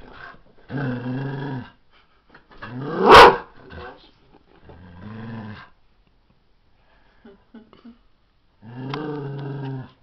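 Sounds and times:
dog barking sharply: 3.1s - 3.5s
dog growling: 4.6s - 5.8s, 8.6s - 10.0s.

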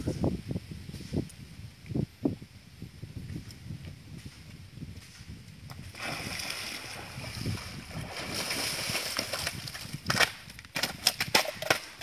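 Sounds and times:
person wading through water: 5.9s - 9.9s.

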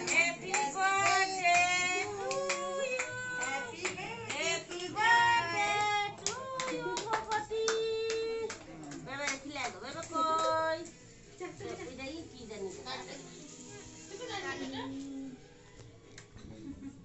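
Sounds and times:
group singing together: 0.0s - 8.6s
hand-clapping: 0.0s - 10.6s.

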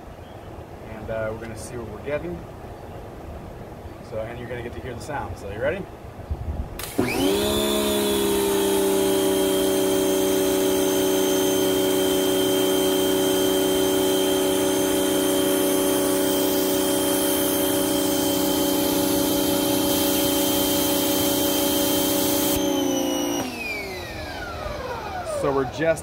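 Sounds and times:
pressure washer motor whine: 6.8s - 26.0s.

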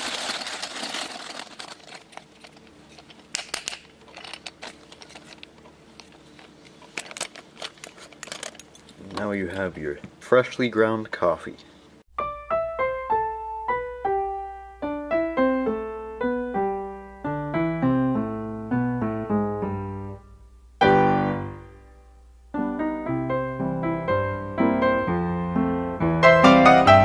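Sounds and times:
piano-like keyboard melody: 12.1s - 20.2s, 20.8s - 27.0s
loud keyboard chord: 12.2s - 27.0s.

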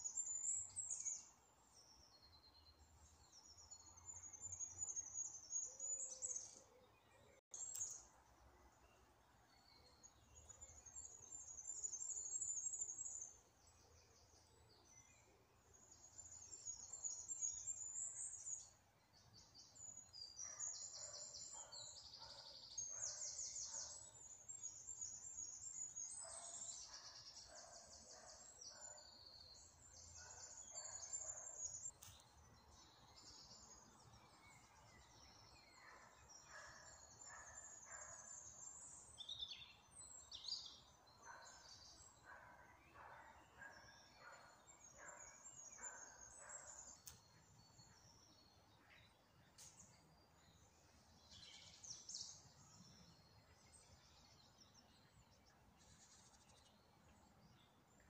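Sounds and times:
songbirds twittering: 0.0s - 58.0s.

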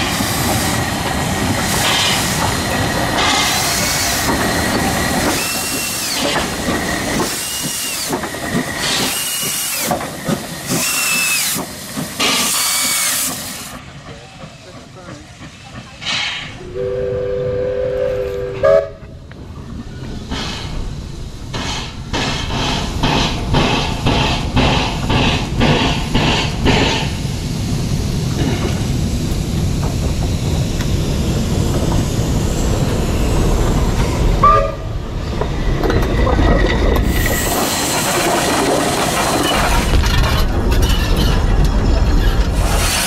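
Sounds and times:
steam locomotive exhaust beats: 0.0s - 36.2s
wheels rumbling on rails: 0.0s - 43.0s
two-note steam whistle: 16.6s - 19.1s.

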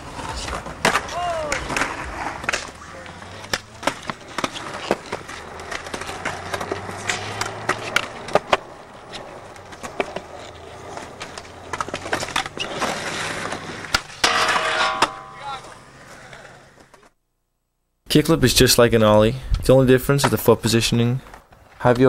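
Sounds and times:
skateboard clicks and knocks: 0.0s - 17.1s
skateboard wheels rolling: 0.0s - 17.1s.

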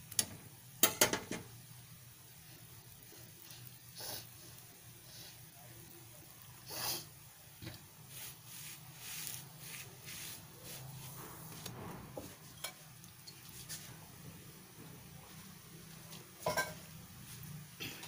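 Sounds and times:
hand scraping flatbread on griddle: 8.0s - 11.8s.

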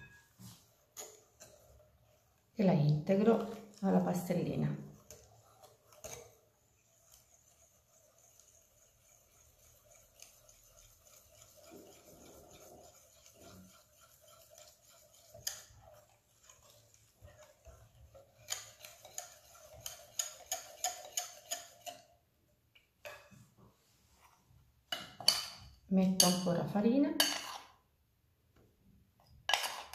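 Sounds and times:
whisk clinking against glass bowl: 5.0s - 22.1s, 24.9s - 26.6s.

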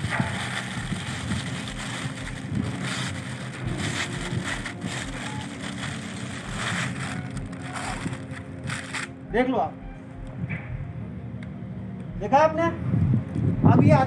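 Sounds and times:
wind buffeting microphone: 0.0s - 8.8s, 12.1s - 14.0s
plastic hood crinkling: 0.0s - 9.2s
low machinery hum: 0.0s - 14.0s.

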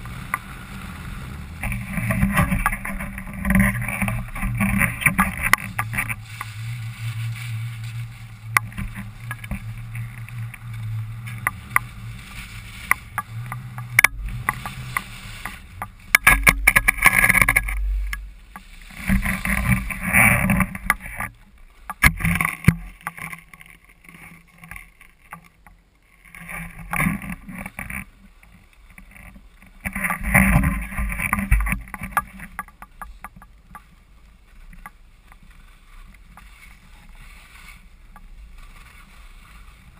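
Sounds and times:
skis scraping over snow: 0.0s - 25.4s, 26.1s - 39.9s
clothing rustling on camera: 1.4s - 17.9s.

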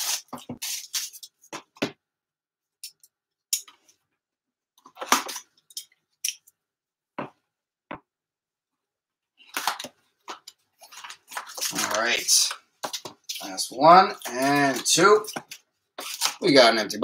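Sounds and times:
plastic wrap crinkling: 9.4s - 13.5s, 14.1s - 16.5s.

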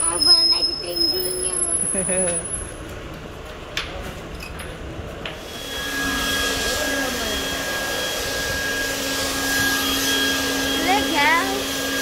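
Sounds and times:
hissing spray from hose wand: 5.4s - 12.0s
motor whine: 5.4s - 12.0s.

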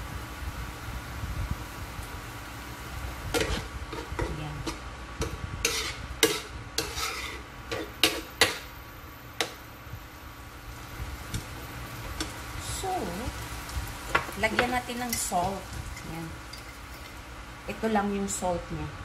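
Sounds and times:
spoon scraping frying pan: 3.4s - 8.7s, 14.1s - 17.3s.

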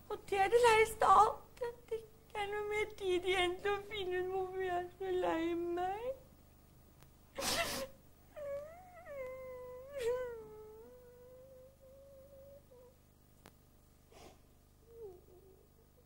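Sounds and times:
woman crying and wailing: 7.4s - 11.3s.

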